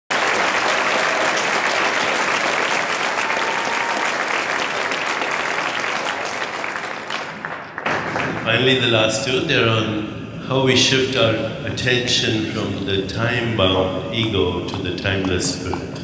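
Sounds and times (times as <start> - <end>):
audience applauding: 0.1 - 8.8.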